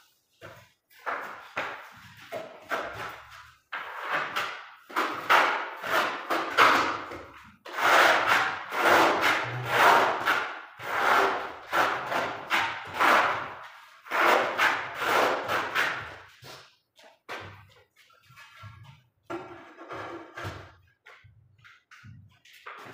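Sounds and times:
trowel scraping adhesive on concrete: 2.7s - 16.7s.

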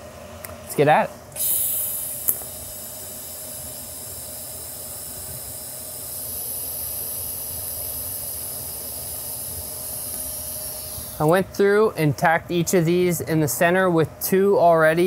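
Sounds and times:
welding arc hissing: 1.4s - 11.3s.

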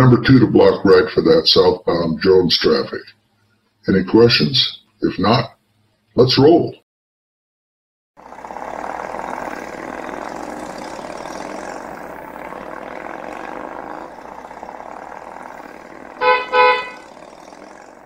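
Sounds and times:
motorcycles riding past: 8.2s - 18.0s
vehicle horn toots: 16.2s - 17.0s.

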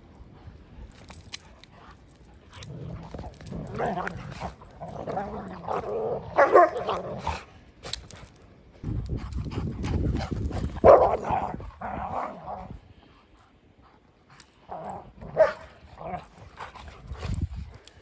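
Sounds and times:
dogs barking and yipping: 3.4s - 7.4s, 9.7s - 12.4s, 15.3s - 17.3s.

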